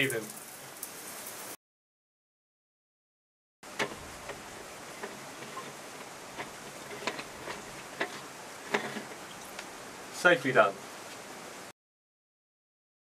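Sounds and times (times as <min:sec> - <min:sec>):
steady low hiss: 0:00.0 - 0:01.6, 0:03.6 - 0:11.7.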